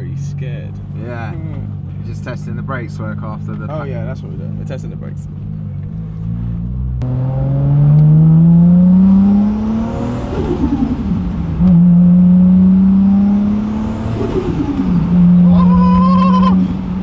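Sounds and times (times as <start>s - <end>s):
car engine revving through gears: 5.4s - 17.0s.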